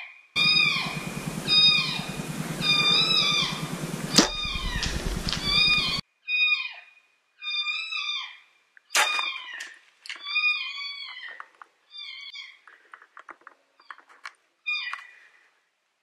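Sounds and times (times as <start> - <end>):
high-pitched animal distress cry: 0.4 - 6.8
light clicks and rustles: 12.6 - 15.2.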